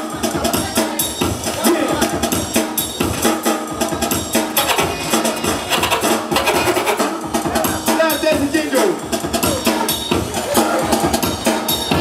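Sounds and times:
breakbeat dance music: 0.0 - 12.0.

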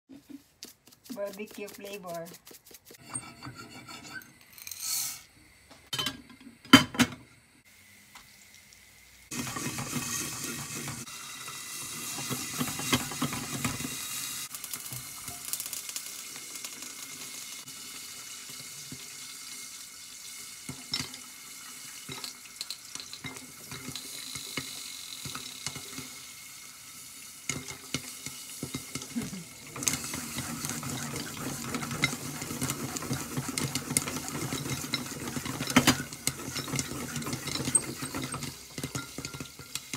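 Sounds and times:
oil sizzling: 4.3 - 39.9
pan shaken on burner: 9.3 - 11.1, 29.7 - 39.9
popcorn popping: 9.3 - 11.1, 11.8 - 17.5, 27.5 - 39.9.

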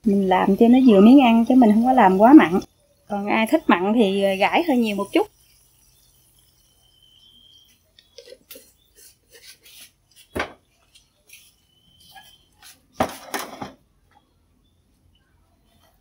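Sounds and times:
kitchenware clattering: 13.0 - 13.8.

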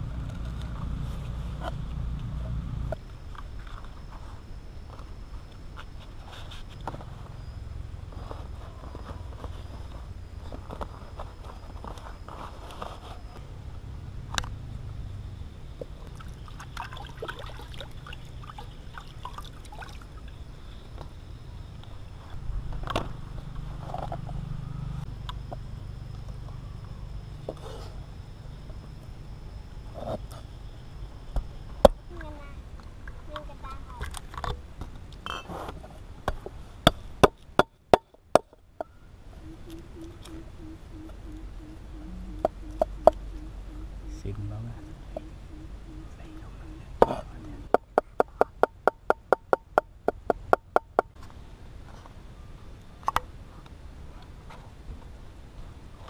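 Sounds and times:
low steady rumble: 0.0 - 56.0
water splashing in steel bowl: 16.1 - 20.2.

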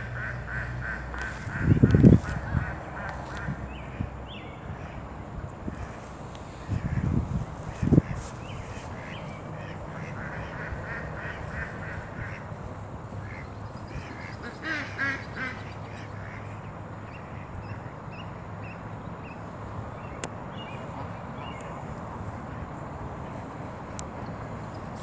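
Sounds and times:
goslings peeping: 0.2 - 3.8, 6.6 - 12.5, 13.2 - 16.4.

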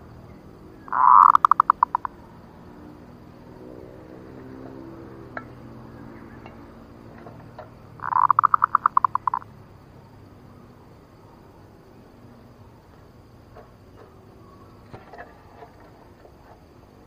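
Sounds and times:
dove staccato cooing call: 0.8 - 2.2, 5.3 - 9.5.

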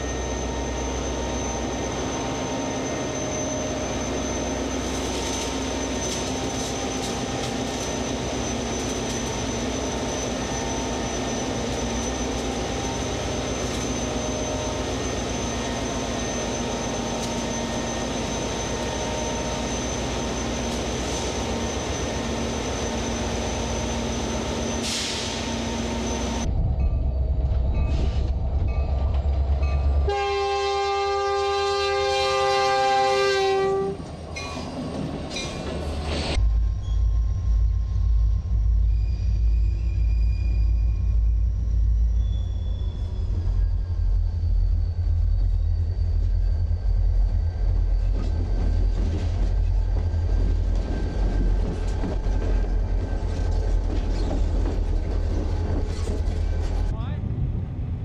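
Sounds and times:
locomotive engine rumbling: 0.0 - 58.0
locomotive air horn: 30.1 - 34.0
train wheels clicking over rail joints: 47.3 - 56.9.

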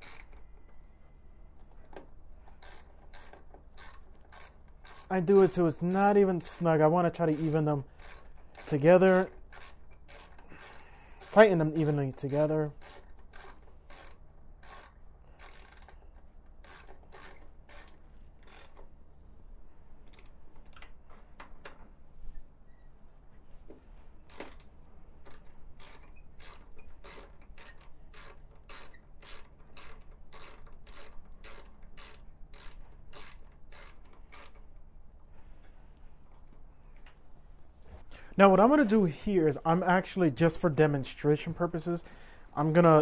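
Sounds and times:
ratcheting hand driver clicking: 0.0 - 0.9, 1.5 - 19.0, 24.2 - 34.9.

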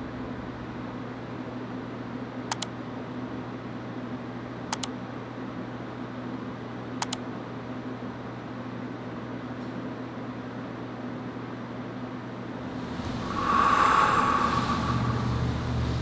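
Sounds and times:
computer mouse clicking: 2.5 - 2.7, 4.7 - 5.0, 7.0 - 7.2
steady low hum: 12.5 - 16.0.

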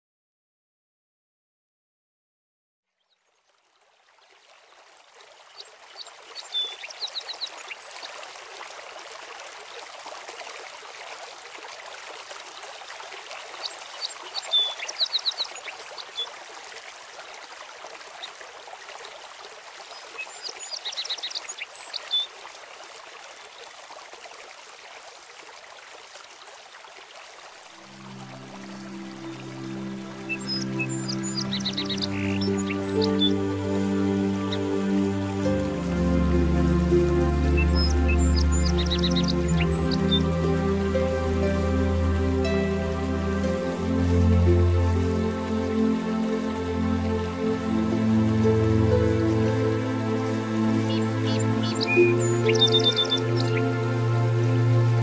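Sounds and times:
running water rushing: 3.3 - 55.0
music: 27.8 - 55.0.

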